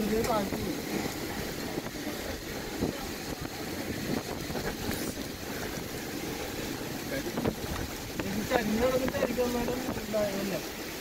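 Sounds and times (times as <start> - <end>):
heavy rain: 0.0 - 11.0
strong wind buffeting microphone: 0.0 - 11.0.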